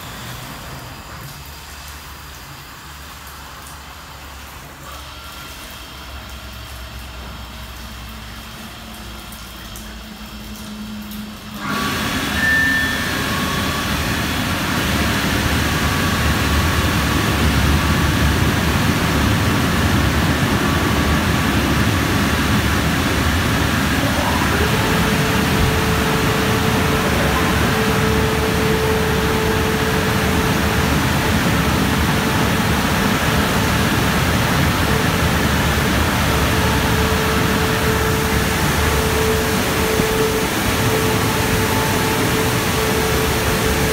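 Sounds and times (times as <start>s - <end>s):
car wash rushing noise: 0.0s - 43.9s
steady hum: 11.6s - 43.9s.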